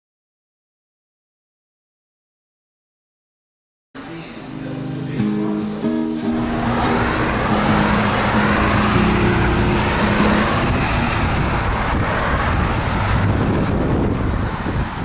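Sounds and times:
road traffic: 4.0s - 15.0s
wind buffeting microphone: 6.4s - 15.0s.

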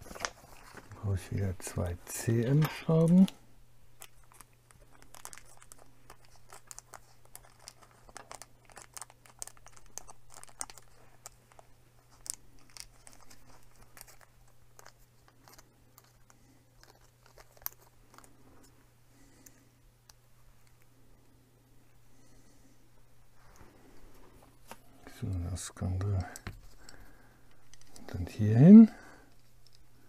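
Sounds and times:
steady low hum: 0.0s - 30.0s
plastic bag crinkling: 4.0s - 18.5s.

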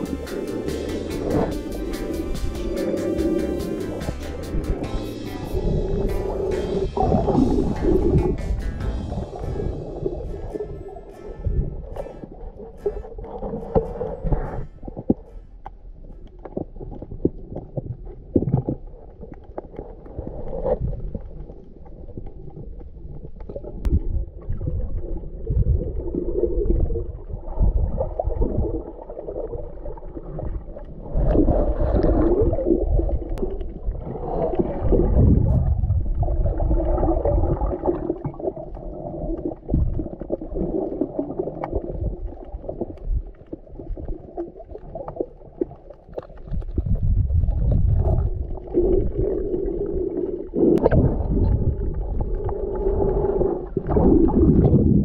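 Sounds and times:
underwater water gurgling: 0.0s - 55.0s.

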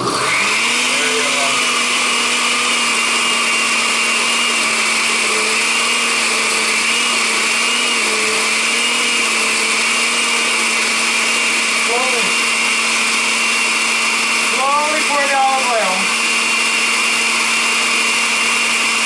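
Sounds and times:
blender motor whine: 0.0s - 19.0s.

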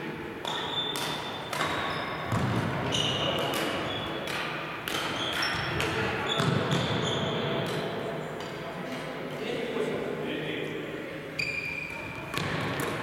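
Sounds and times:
rackets striking shuttlecocks: 0.4s - 7.0s, 7.6s - 8.6s, 12.3s - 13.0s.

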